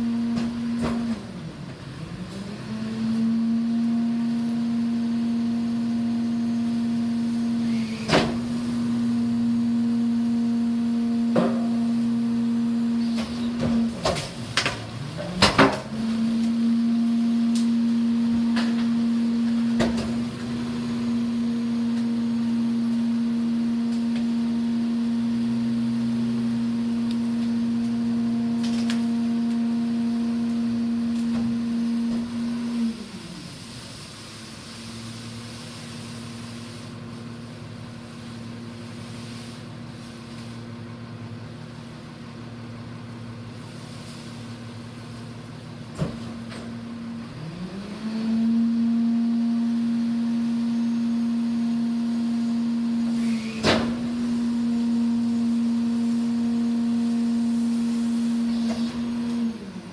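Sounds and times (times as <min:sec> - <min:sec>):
garbage truck hydraulic hum: 0:00.0 - 0:59.9
branches cracking and snapping: 0:28.5 - 0:29.7.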